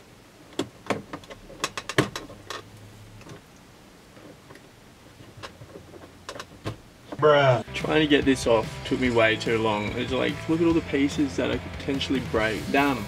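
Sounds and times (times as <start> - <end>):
plastic trim clicks and knocks: 0.6 - 2.6.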